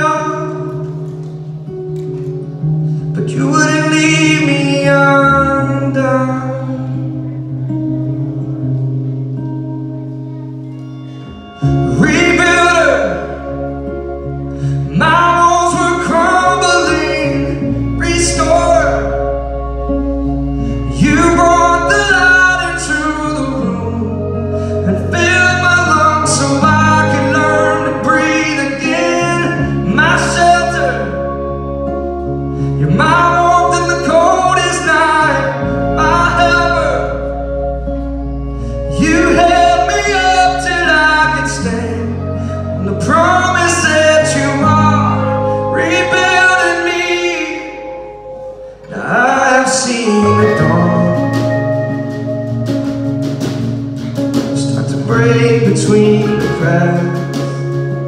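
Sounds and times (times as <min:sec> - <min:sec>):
man singing lead vocal: 0:00.0 - 0:00.9, 0:03.1 - 0:07.4, 0:11.5 - 0:14.0, 0:14.6 - 0:48.2, 0:48.8 - 0:52.3, 0:54.4 - 0:58.0
acoustic and electric guitars: 0:00.0 - 0:58.0
bass guitar: 0:00.0 - 0:58.0
drums: 0:50.0 - 0:58.0.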